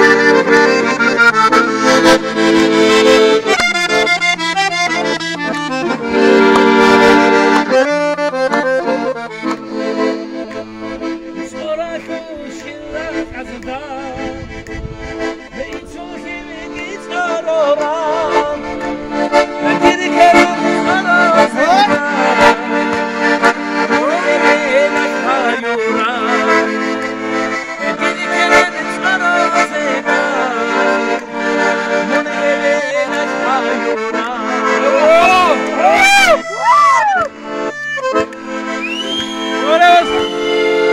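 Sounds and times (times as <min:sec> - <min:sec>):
button accordion playing: 0:00.0 - 0:40.9
man singing: 0:11.4 - 0:14.5, 0:15.5 - 0:19.0, 0:19.6 - 0:22.9, 0:23.8 - 0:26.9, 0:27.8 - 0:36.0.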